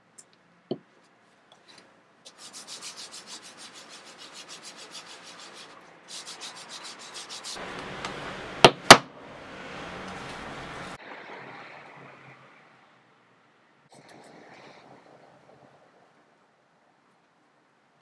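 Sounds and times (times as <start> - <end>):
pad rubbing on leather: 2.3 - 7.6.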